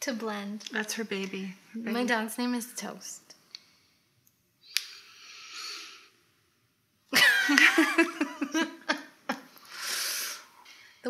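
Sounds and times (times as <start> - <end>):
women laughing: 7.1 - 9.5.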